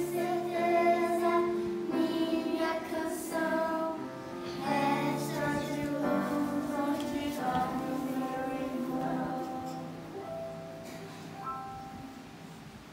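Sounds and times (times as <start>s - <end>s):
children singing: 0.0s - 10.2s.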